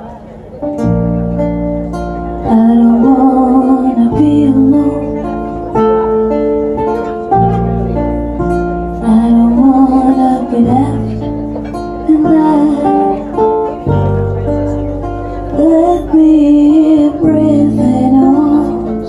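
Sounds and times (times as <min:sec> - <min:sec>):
acoustic guitar: 0:00.0 - 0:19.0
woman singing: 0:02.4 - 0:05.3, 0:09.0 - 0:13.8, 0:15.5 - 0:19.0.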